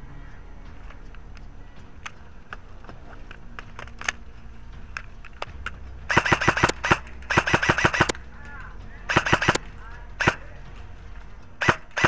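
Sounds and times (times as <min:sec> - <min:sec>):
airsoft rifle reloading clicks: 0:04.9 - 0:08.2, 0:09.1 - 0:09.6
rapid airsoft rifle fire: 0:06.1 - 0:08.2, 0:09.1 - 0:09.6, 0:11.6 - 0:12.0.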